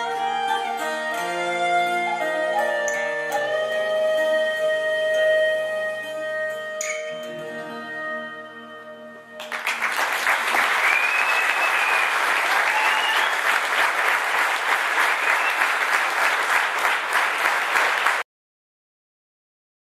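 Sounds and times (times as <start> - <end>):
audience applause: 9.4 - 18.2.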